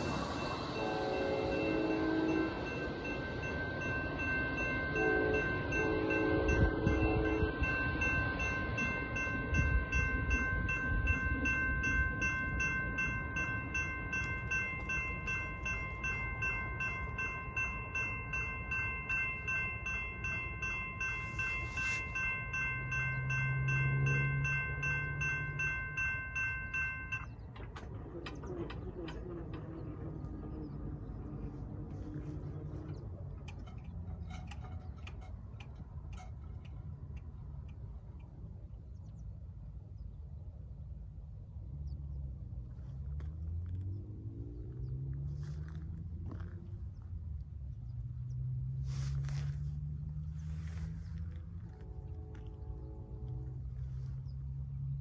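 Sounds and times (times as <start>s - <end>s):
train horn: 0.0s - 10.7s, 50.6s - 55.0s
crossing signal bells ringing: 0.0s - 32.7s
train rumbling: 0.0s - 55.0s
crossing gates clicking and knocking: 22.6s - 31.5s, 32.9s - 36.9s.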